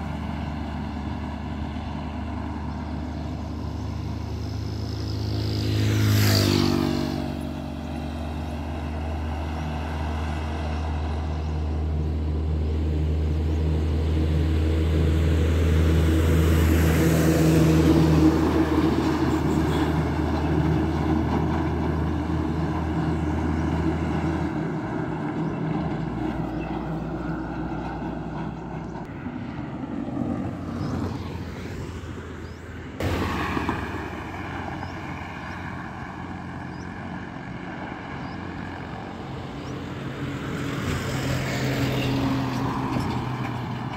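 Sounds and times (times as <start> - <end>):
motorcycle passing: 0.0 - 43.9
van passing: 0.0 - 43.9
vehicle rushing past: 0.0 - 43.9.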